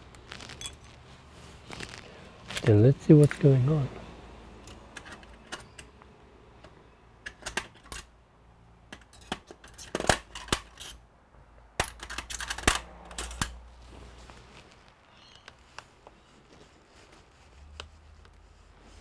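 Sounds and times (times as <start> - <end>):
small tools clicking and tapping: 4.6 - 8.1, 8.9 - 11.0, 11.8 - 13.6.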